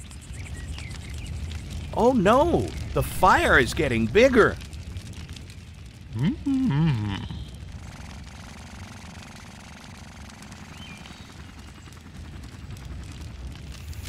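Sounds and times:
faint low rumble: 0.0s - 14.0s
cartoon character vocal sound: 6.2s - 7.4s.

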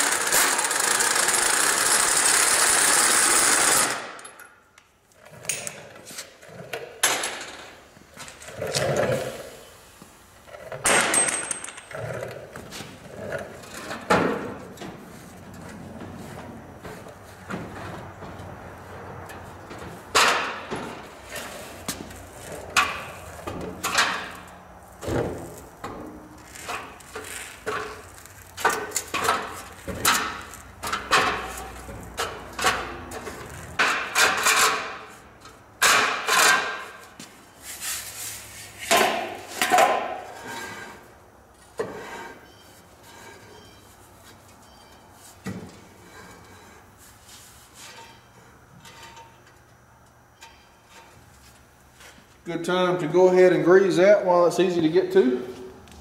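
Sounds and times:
metal clanks and knocks: 13.5s - 21.1s, 28.6s - 35.2s.

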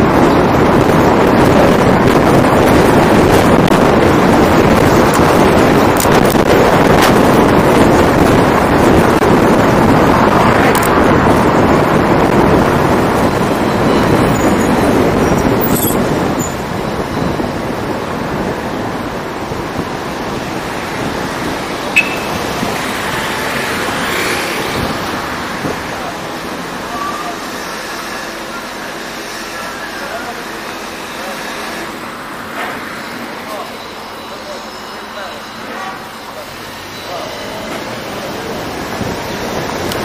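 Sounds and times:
wind buffeting microphone: 0.0s - 26.8s
car tyre and road noise: 0.0s - 40.0s
sharp blip: 22.0s - 22.5s.

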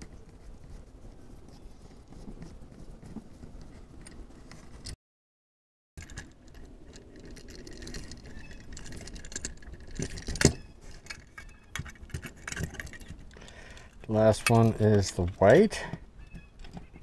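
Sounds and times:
screwdriver clicks and rattles: 6.0s - 15.4s.

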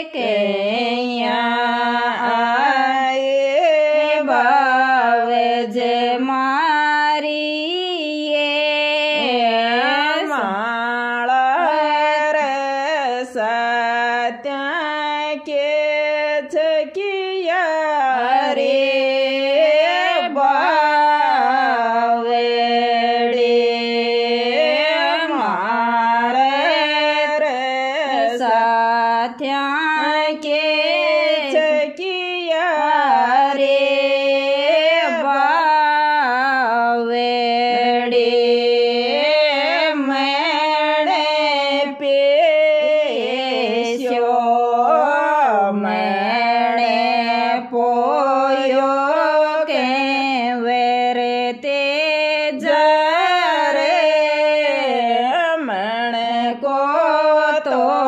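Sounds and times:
woman singing folk song: 0.0s - 58.0s.

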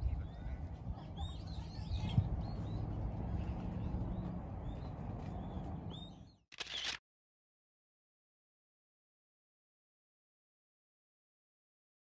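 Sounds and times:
small birds chirping: 0.0s - 6.9s.

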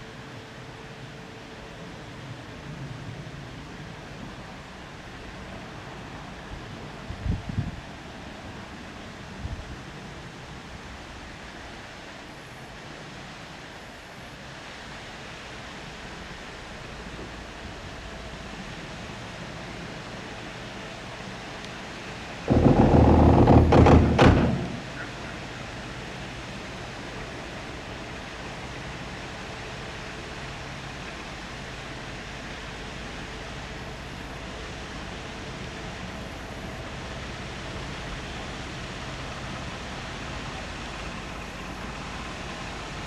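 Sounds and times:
faint low boat engine hum: 0.0s - 43.0s
wind: 0.0s - 43.0s
loud rumble with knocks: 22.4s - 25.2s.

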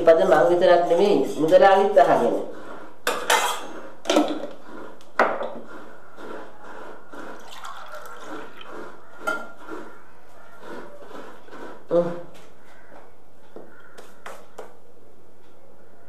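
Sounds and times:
liquid being poured: 7.2s - 9.6s
mugs and glass jug clinking: 7.4s - 9.6s.

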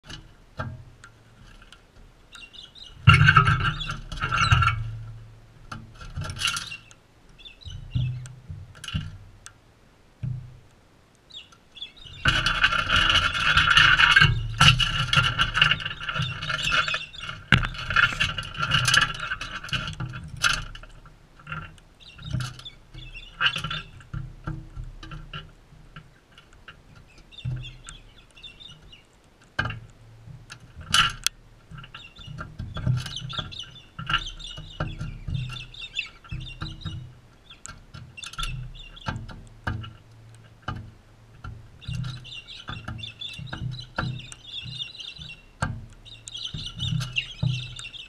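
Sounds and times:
birds screeching harshly: 2.3s - 4.9s, 6.4s - 8.3s, 11.3s - 20.0s, 20.6s - 24.0s, 26.9s - 29.1s, 31.7s - 39.2s, 41.8s - 48.0s.

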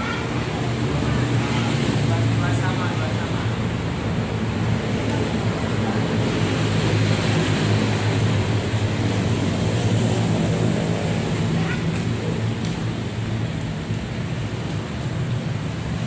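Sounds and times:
low rumbling background noise: 0.0s - 16.0s.

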